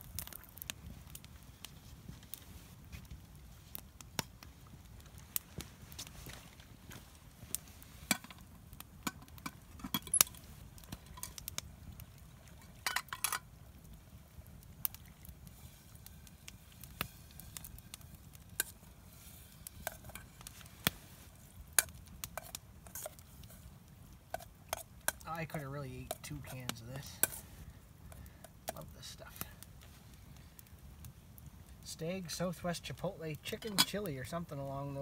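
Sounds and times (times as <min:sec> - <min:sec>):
campfire crackling: 0:00.0 - 0:35.0
metal spoon scraping a pot: 0:18.6 - 0:18.8, 0:19.8 - 0:20.4, 0:21.8 - 0:23.6, 0:27.2 - 0:27.5.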